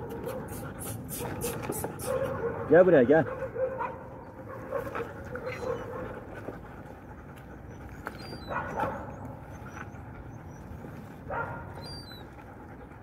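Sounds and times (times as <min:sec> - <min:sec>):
dog vocal sounds: 0:00.0 - 0:13.0
dogs eating: 0:00.0 - 0:13.0.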